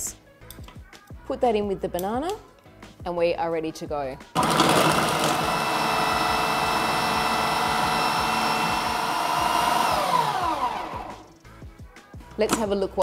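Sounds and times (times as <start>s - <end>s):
food processor motor whine: 4.4s - 11.4s.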